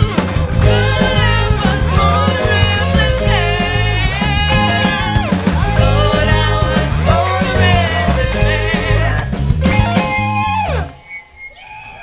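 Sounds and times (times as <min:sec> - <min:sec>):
bass guitar: 0:00.0 - 0:11.2
drums: 0:00.0 - 0:11.5
electric guitar: 0:00.0 - 0:12.0
women singing: 0:00.7 - 0:09.4.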